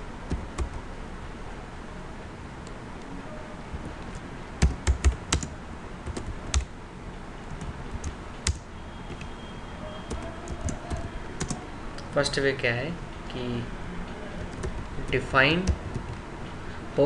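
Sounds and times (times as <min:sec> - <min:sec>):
keyboard typing: 0:00.3 - 0:00.8, 0:03.8 - 0:06.7, 0:07.4 - 0:09.3, 0:10.0 - 0:11.6, 0:14.4 - 0:16.2.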